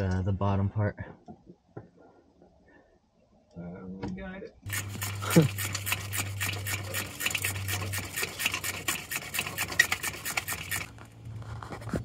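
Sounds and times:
ratchet wrench clicking: 0:04.7 - 0:11.0.

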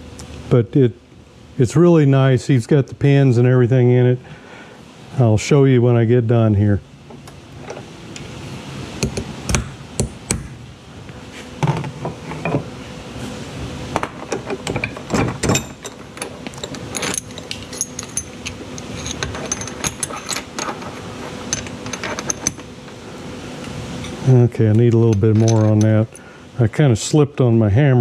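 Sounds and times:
tool clicking and rattling: 0:14.0 - 0:22.7.

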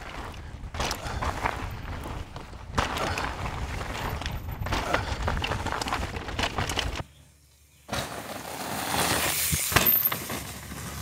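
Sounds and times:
bike rattles and knocks: 0:00.0 - 0:07.1, 0:09.0 - 0:11.0
tyre and wind rumble: 0:00.0 - 0:07.1.

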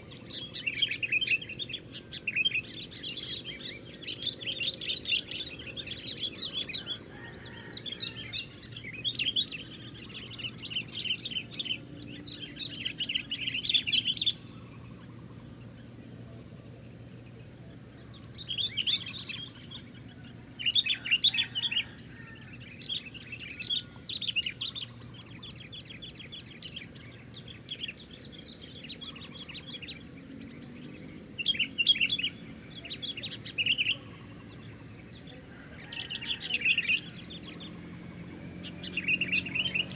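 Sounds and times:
bulbuls chattering calls: 0:31.4 - 0:39.9.

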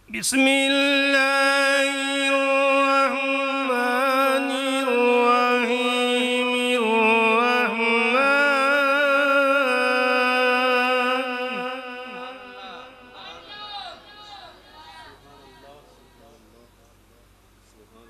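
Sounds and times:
man reciting melodically: 0:00.0 - 0:16.3.

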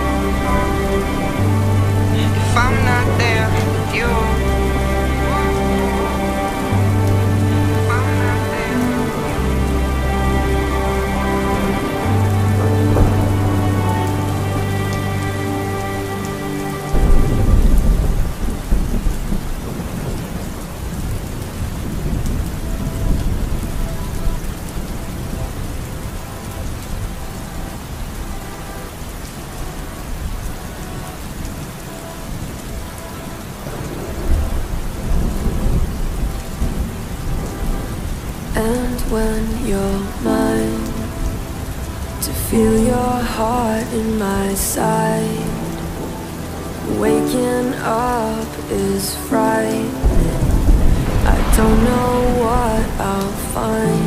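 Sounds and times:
music playing: 0:00.0 - 0:20.3, 0:21.8 - 0:54.0
deep rumbling: 0:00.0 - 0:24.4, 0:49.9 - 0:54.0
rain falling: 0:00.0 - 0:54.0.

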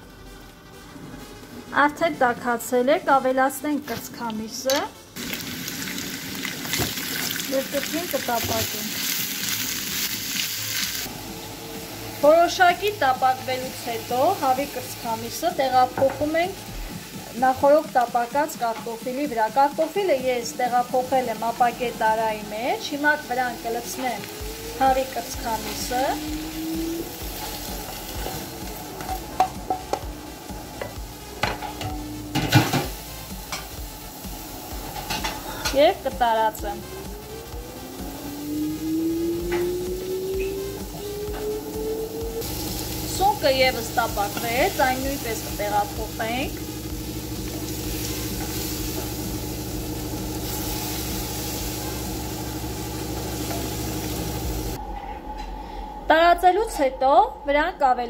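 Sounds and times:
faint frying sizzle: 0:00.0 - 0:54.8
motor-like hum: 0:43.8 - 0:55.8.

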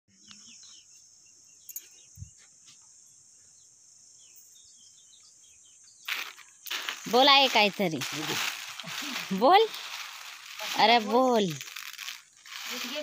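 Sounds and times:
bird chirps: 0:00.1 - 0:08.0.

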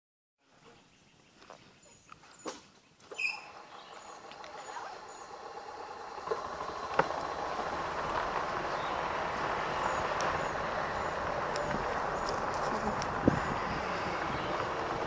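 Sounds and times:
tyres crunching on gravel: 0:03.1 - 0:15.0.

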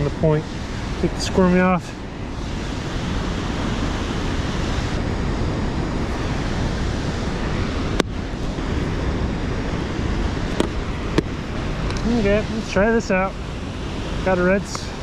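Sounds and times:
river water rushing: 0:00.0 - 0:15.0
wind on microphone: 0:00.0 - 0:15.0.

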